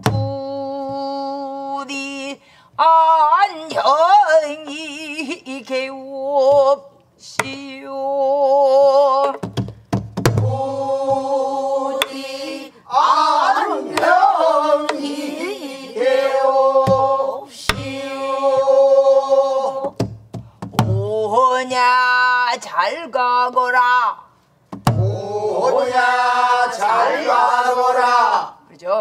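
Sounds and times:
barrel drum strokes: 0:09.3 - 0:12.4, 0:16.8 - 0:18.8.

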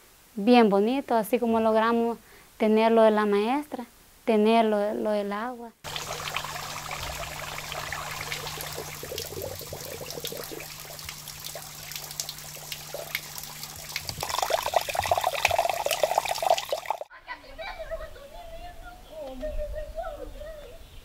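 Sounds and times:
faint low hum: 0:05.8 - 0:17.0
water trickling and splashing on rock: 0:05.9 - 0:17.1.

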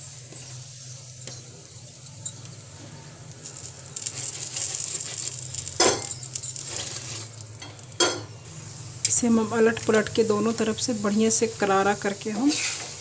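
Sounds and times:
flatbread sizzling in oil: 0:00.0 - 0:13.0
metal spatula clinking on pan: 0:05.0 - 0:07.0, 0:07.6 - 0:08.3.

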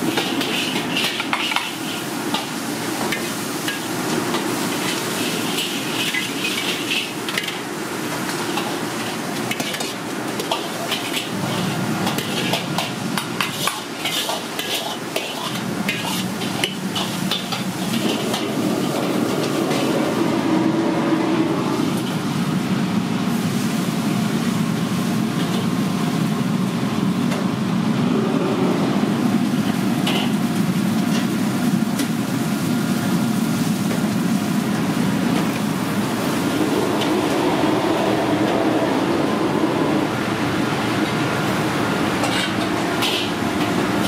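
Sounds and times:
loud mechanical rumble: 0:15.6 - 0:44.0.

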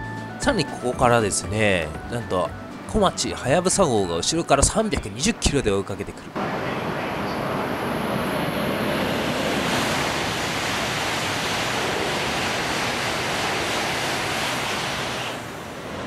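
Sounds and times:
train passing at speed: 0:06.2 - 0:16.0.

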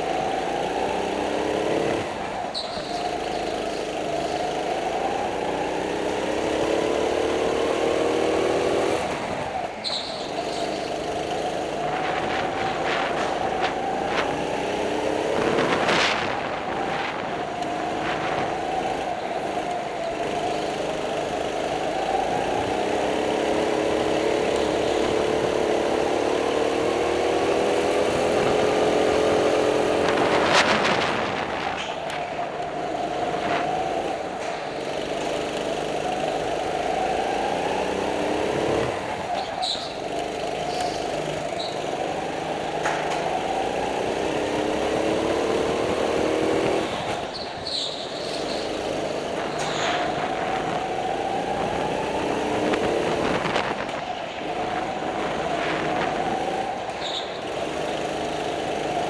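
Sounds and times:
go-kart engine revving: 0:00.0 - 0:59.0.

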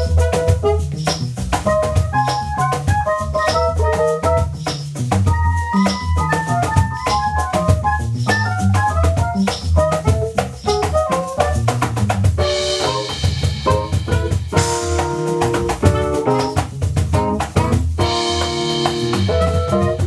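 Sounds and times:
soprano saxophone: 0:00.0 - 0:01.0
drums and hand percussion: 0:00.0 - 0:20.0
electric keyboard lines: 0:00.0 - 0:20.0
keyboard bass line: 0:00.0 - 0:20.0.

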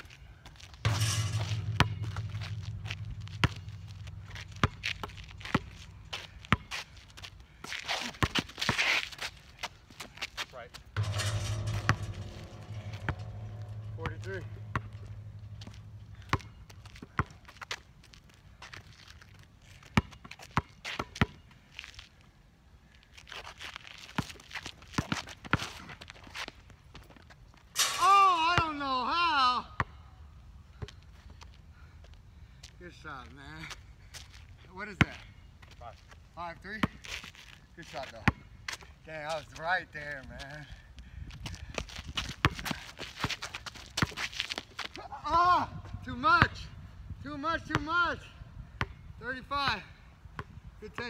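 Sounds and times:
basketball clanging off metal rim: 0:00.8 - 0:04.3, 0:11.0 - 0:16.3, 0:27.8 - 0:28.2
ball bouncing on asphalt: 0:00.8 - 0:07.3, 0:11.0 - 0:17.8, 0:41.7 - 0:44.9, 0:50.4 - 0:51.0.

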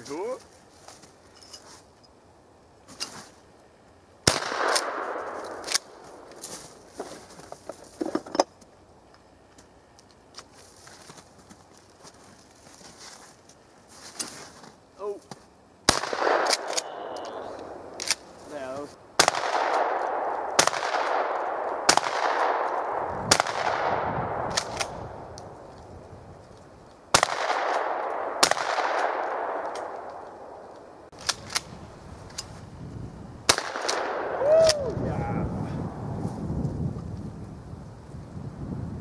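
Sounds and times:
shotgun shots with echo: 0:04.2 - 0:05.8, 0:15.9 - 0:17.9, 0:19.2 - 0:25.0, 0:27.1 - 0:30.1, 0:33.5 - 0:34.4.

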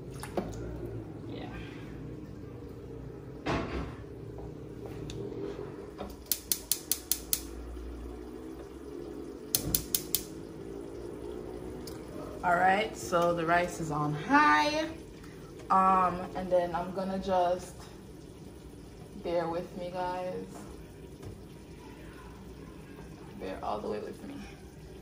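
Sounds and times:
stove igniter ticking: 0:06.1 - 0:08.0, 0:09.4 - 0:10.5.

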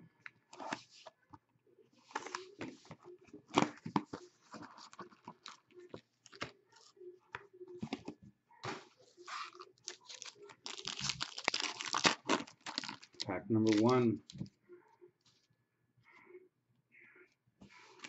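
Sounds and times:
card packs rustling: 0:02.0 - 0:06.9, 0:07.8 - 0:14.5
plastic shrink-wrap tearing: 0:09.4 - 0:14.0.

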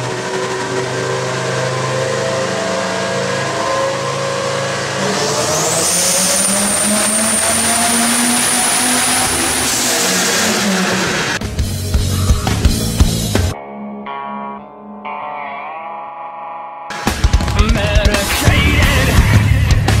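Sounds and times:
car engine revving on dyno: 0:00.0 - 0:11.6
turbo whine: 0:00.0 - 0:15.2.

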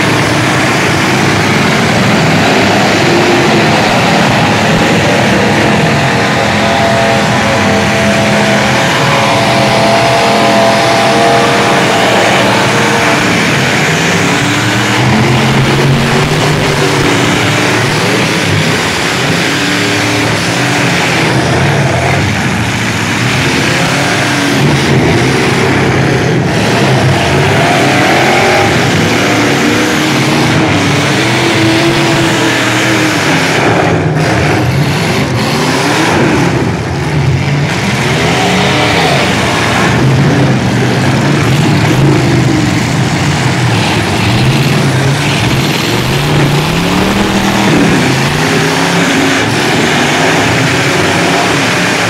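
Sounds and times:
arena noise: 0:00.0 - 0:52.0
truck engines revving hard: 0:00.0 - 0:52.0.

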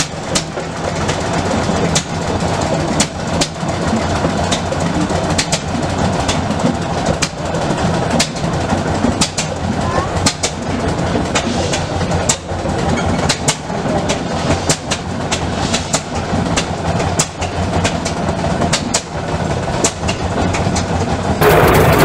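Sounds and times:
machine low rumble: 0:00.0 - 0:22.0
sharp clacks: 0:01.9 - 0:02.2, 0:04.2 - 0:09.6, 0:10.2 - 0:19.1.

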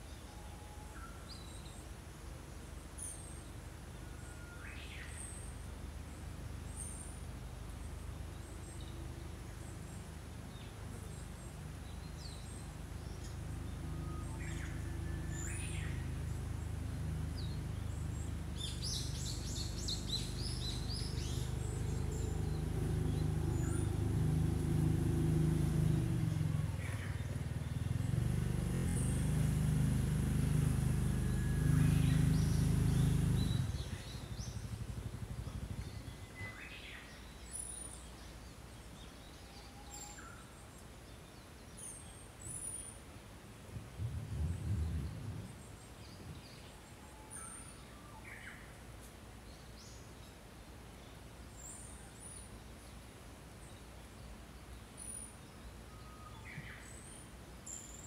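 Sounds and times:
songbirds chirping: 0:00.0 - 0:58.0
low mechanical hum: 0:43.0 - 0:53.6.

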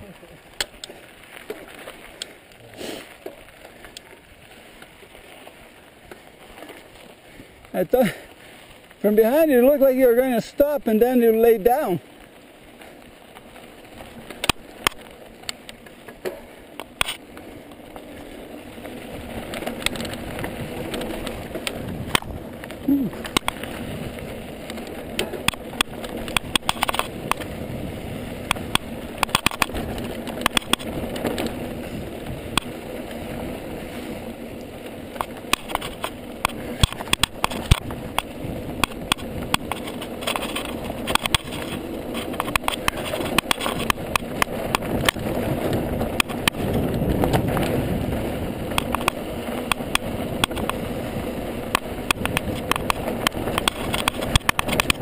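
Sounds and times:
bike rattling and clicking: 0:00.0 - 0:55.0
bike tyres crunching over gravel: 0:00.0 - 0:55.0
wind on microphone: 0:35.7 - 0:55.0.

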